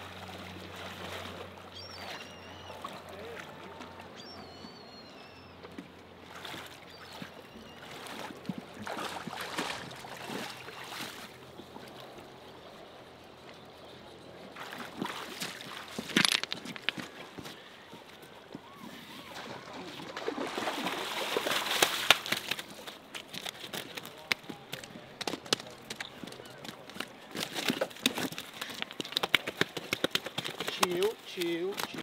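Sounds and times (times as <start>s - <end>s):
water sloshing around waders: 0.0s - 4.9s, 5.7s - 12.3s, 14.4s - 25.2s.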